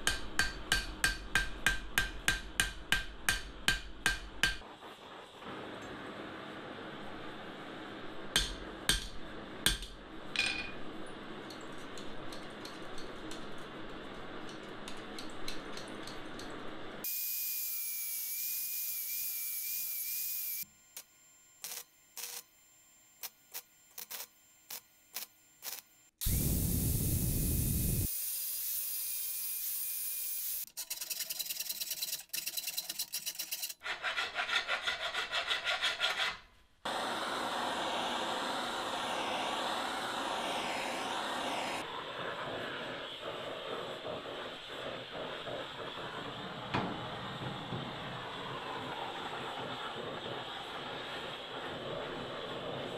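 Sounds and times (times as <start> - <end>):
hammer tapping on anvil: 0.0 - 4.6, 8.4 - 10.8
welder crackling: 23.2 - 28.1
torch flame hissing: 26.2 - 28.1, 36.9 - 52.9.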